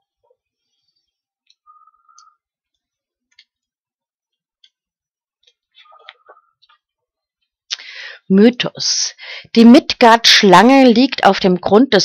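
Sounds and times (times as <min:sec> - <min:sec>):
small clicks and ticks: 0:01.4 - 0:07.6
faint squeak: 0:01.6 - 0:02.4.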